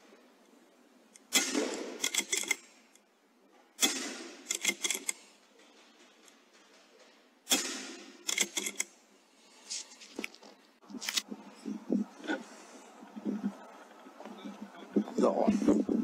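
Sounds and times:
air rifle shots: 1.2 - 2.7, 3.8 - 5.3, 7.4 - 9.0.

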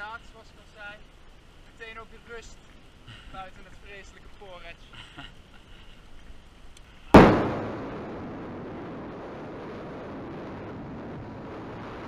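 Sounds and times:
wind buffeting microphone: 7.1 - 12.0
sudden loud burst of noise: 7.2 - 12.0.

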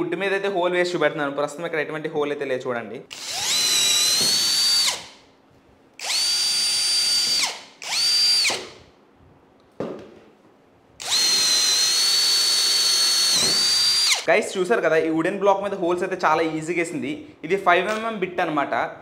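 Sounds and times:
cordless drill whining: 3.1 - 5.1, 6.0 - 8.8, 11.0 - 14.3.

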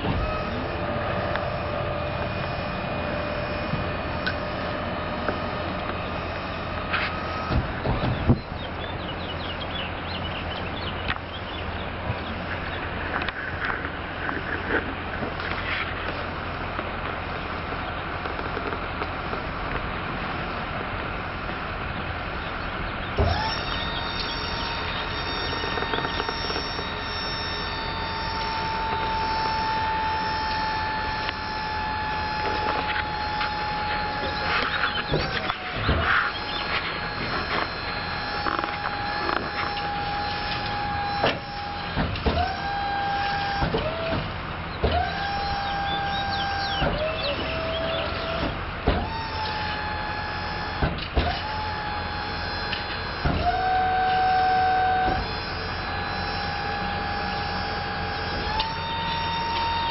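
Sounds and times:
motor starting with a thump: 0.0 - 0.7, 6.9 - 8.5, 23.1 - 59.9
high-pitched motor whine: 0.0 - 59.9
low engine rumble: 0.0 - 59.9.

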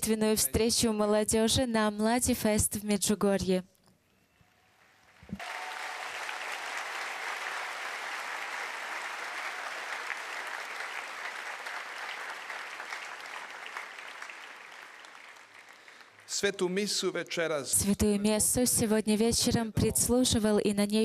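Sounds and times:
crowd applauding: 4.9 - 16.7.

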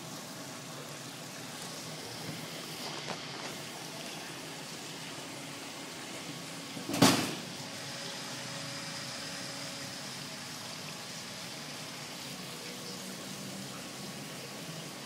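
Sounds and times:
loud short bump: 6.9 - 7.5.

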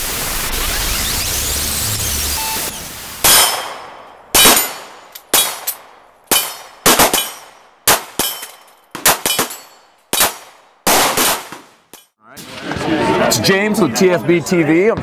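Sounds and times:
sharp metallic bangs ringing: 3.2 - 10.4.

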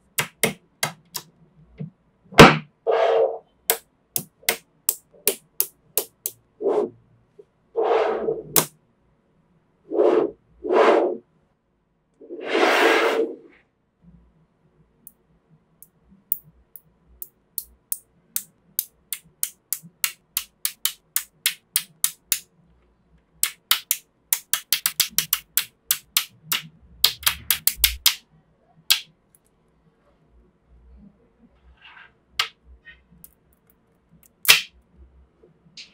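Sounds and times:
magnet balls clicking together: 17.6 - 22.4, 23.4 - 28.2.

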